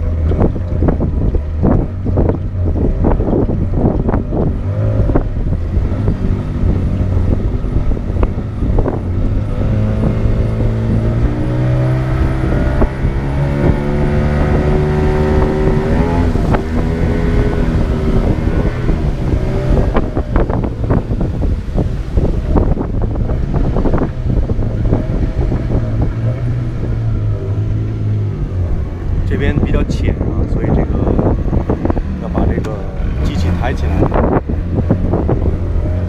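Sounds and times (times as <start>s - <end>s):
water knocking against hull: 0.0s - 9.2s
small boat motor running: 0.0s - 36.0s
wind buffeting microphone: 0.0s - 36.0s.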